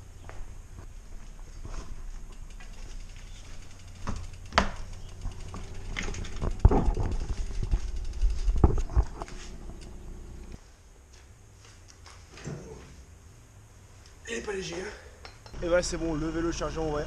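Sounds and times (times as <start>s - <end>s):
mountain bike knocks and rattles: 1.6s - 9.2s.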